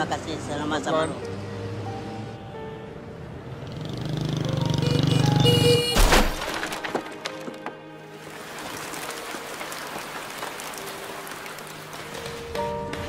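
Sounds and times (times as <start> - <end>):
soft background music: 0.0 - 6.0, 6.6 - 13.0
motorcycle engine: 3.4 - 6.0
crash: 6.0 - 7.7
debris clattering: 6.0 - 12.1.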